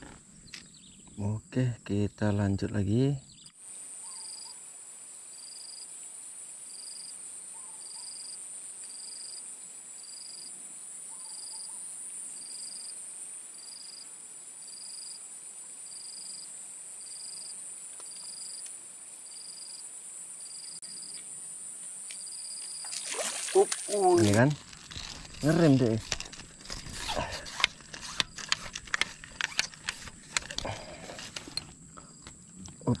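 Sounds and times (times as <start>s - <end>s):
insects high-pitched drone: 0.4s - 33.0s
insect short chirps: 3.3s - 5.9s, 15.8s - 28.7s.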